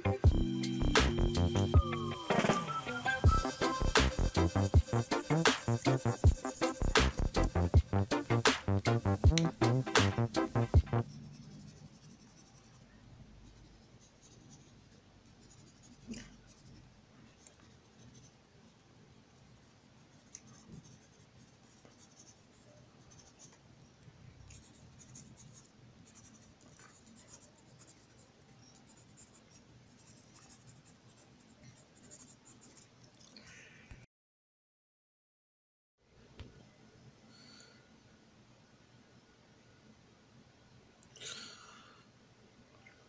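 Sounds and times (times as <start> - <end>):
background music: 0.0 - 11.2
coloured pencil scratching on paper: 3.3 - 18.4, 19.3 - 23.6, 24.5 - 32.9.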